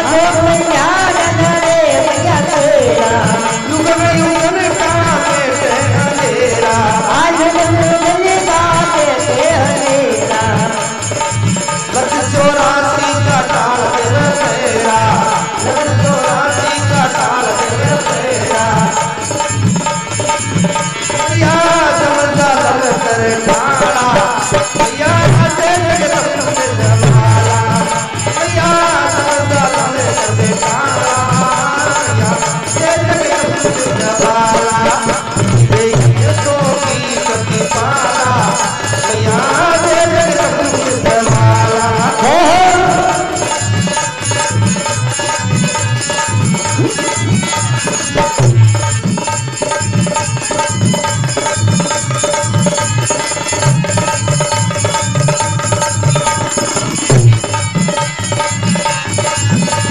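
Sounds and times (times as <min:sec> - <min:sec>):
harmonium: 0:00.0 - 0:59.9
jingling hand clappers: 0:00.0 - 0:59.9
man singing: 0:00.0 - 0:59.9
hand drum beat: 0:23.4 - 0:28.7, 0:46.5 - 0:49.2, 0:53.6 - 0:57.9.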